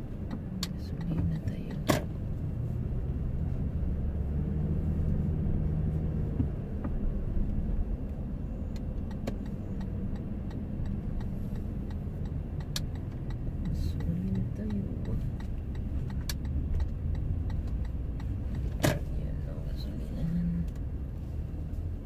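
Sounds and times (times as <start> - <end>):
car engine and road rumble: 0.0 - 22.0
faint clicks: 6.4 - 18.8.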